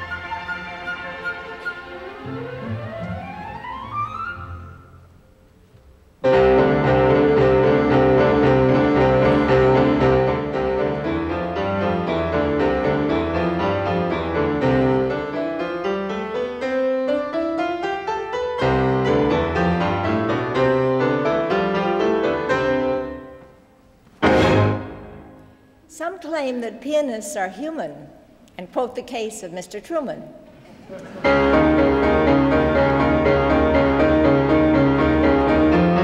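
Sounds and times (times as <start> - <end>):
grand piano playing chords and runs: 6.2 - 23.6, 24.2 - 25.6, 31.2 - 36.0.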